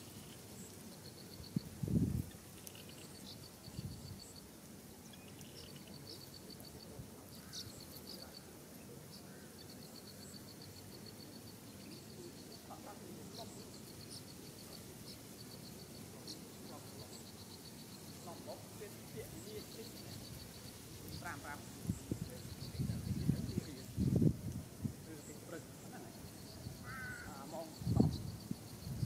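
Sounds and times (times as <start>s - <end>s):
crickets chirping: 0.0s - 29.0s
faint background hiss: 0.0s - 29.0s
bird chirps: 5.0s - 6.4s.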